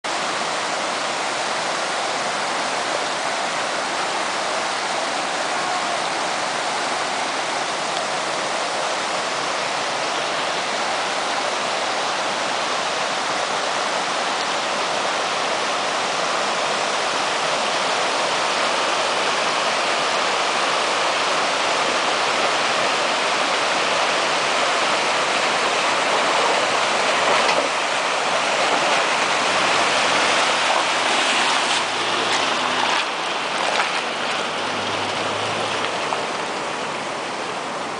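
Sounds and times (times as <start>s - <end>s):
creek water rushing over rocks: 0.0s - 37.9s
faint car engine: 29.4s - 37.9s.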